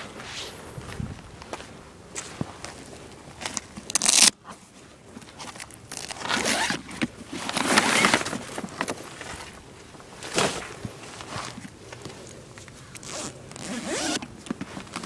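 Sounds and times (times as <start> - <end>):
zipper being pulled: 3.9 - 4.3, 6.0 - 6.8, 13.0 - 14.2.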